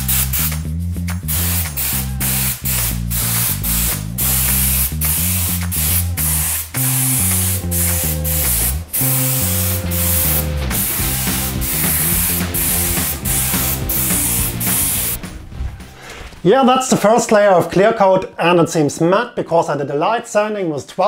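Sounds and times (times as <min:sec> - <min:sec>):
paint spray gun hissing: 0:00.0 - 0:00.6, 0:01.3 - 0:15.2
background music: 0:00.0 - 0:17.3.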